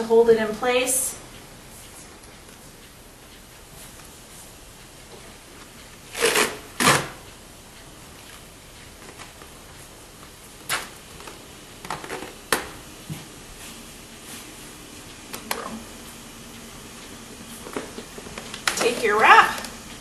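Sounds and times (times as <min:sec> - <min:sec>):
tape ripping off roll: 0:06.1 - 0:07.2.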